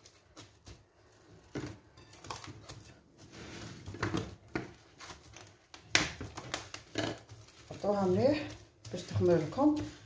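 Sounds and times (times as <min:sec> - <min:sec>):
cling film crinkling: 0:04.8 - 0:09.9.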